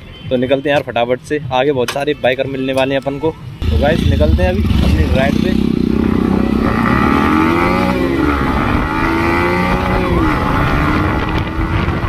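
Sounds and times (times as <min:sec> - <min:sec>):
motorcycle engine accelerating: 0:03.6 - 0:12.0.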